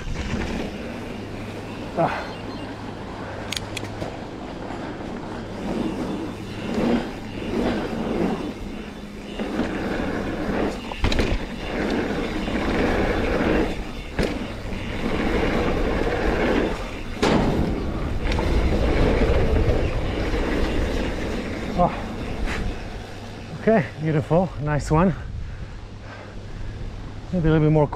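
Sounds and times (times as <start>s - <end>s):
tyre and wind rush: 0.0s - 27.9s
bike knocking on ground: 8.8s - 21.0s.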